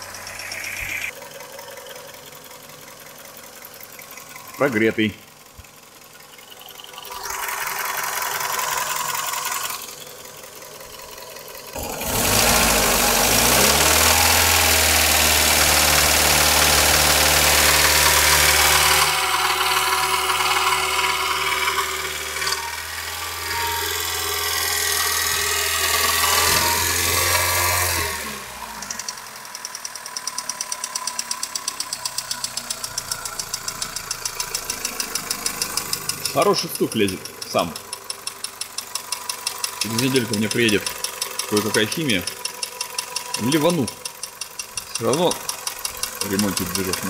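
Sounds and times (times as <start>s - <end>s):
car engine running with knock: 0.0s - 28.0s, 28.6s - 47.0s.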